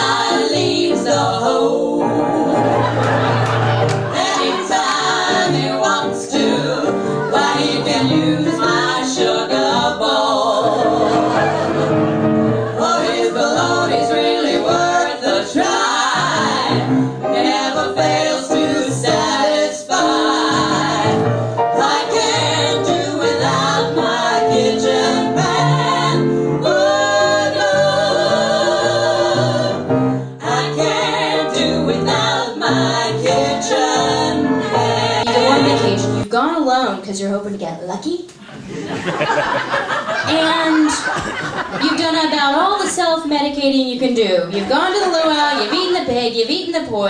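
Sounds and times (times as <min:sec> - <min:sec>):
female vocal trio singing: 0:00.0 - 0:03.0, 0:04.0 - 0:36.3
piano accompaniment: 0:00.0 - 0:36.7.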